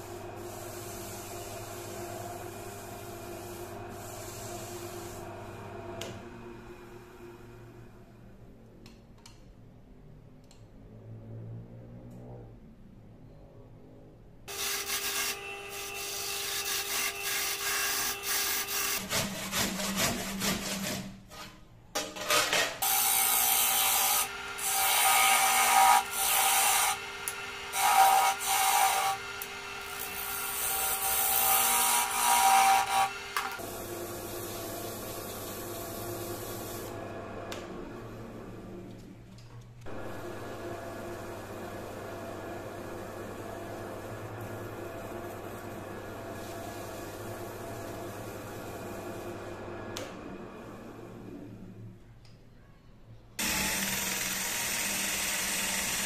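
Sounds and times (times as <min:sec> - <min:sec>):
lathe motor hum: 0:00.0 - 0:08.0, 0:22.8 - 0:39.1, 0:39.9 - 0:51.6, 0:53.4 - 0:56.0
turning tool scraping wood: 0:14.5 - 0:21.6.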